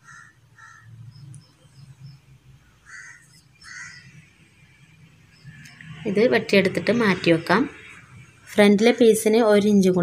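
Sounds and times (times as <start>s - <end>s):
crows cawing: 0.0s - 1.1s, 2.6s - 4.2s
small bird chirping: 0.0s - 4.2s.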